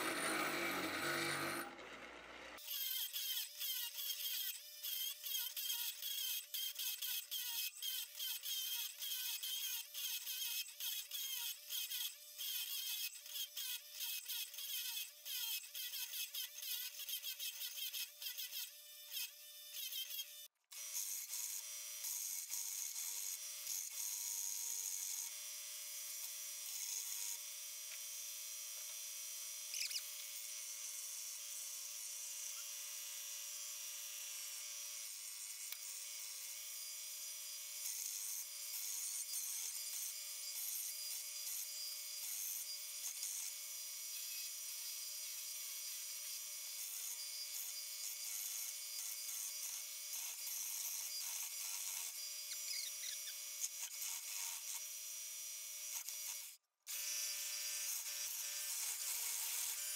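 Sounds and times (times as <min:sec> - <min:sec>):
belt sander rasping: 0:00.0 - 0:02.6
bench grinder grinding metal: 0:00.0 - 0:21.7, 0:32.5 - 0:55.0, 0:55.9 - 0:59.9.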